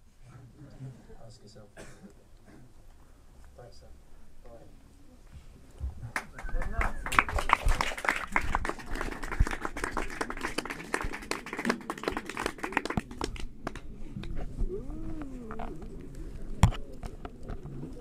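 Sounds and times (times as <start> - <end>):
audience clapping: 6.1 - 13.9.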